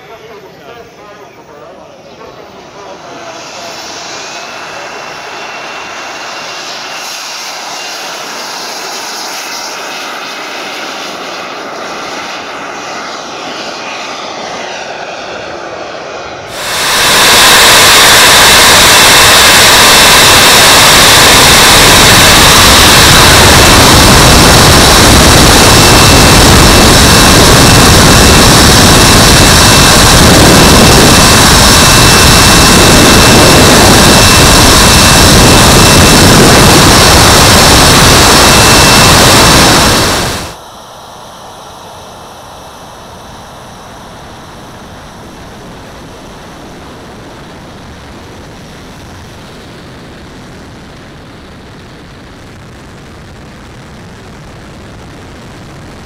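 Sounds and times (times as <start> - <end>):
jet turbine roar with high whistle: 0.0 - 56.0
jet turbines whining: 0.0 - 56.0.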